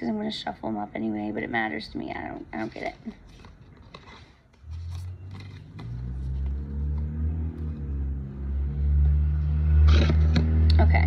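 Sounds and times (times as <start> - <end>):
low engine drone: 4.6 - 11.0.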